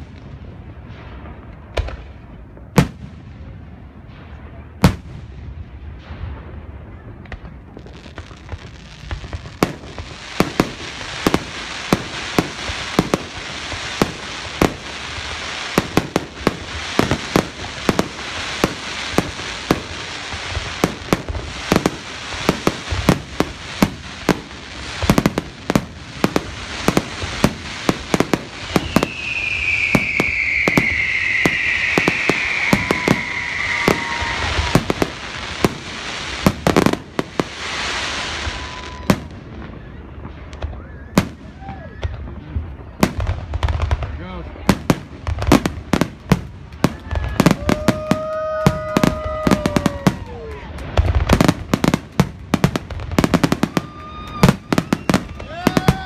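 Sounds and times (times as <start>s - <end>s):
firework bangs and crackling: 0.0s - 56.0s
firework hiss: 7.9s - 42.0s, 42.9s - 56.0s
falling firework whistle: 25.0s - 42.3s, 46.8s - 52.0s, 53.1s - 56.0s.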